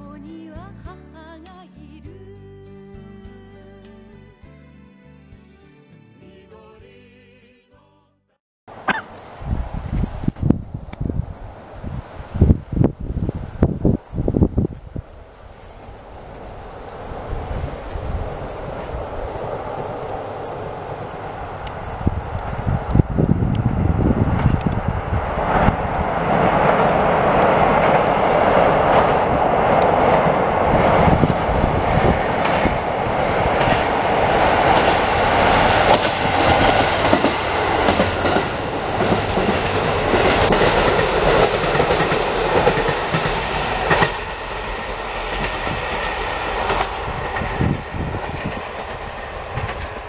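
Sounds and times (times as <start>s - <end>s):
diesel train engines running: 8.7s - 50.0s
train wheels clacking over rail joints: 33.4s - 50.0s.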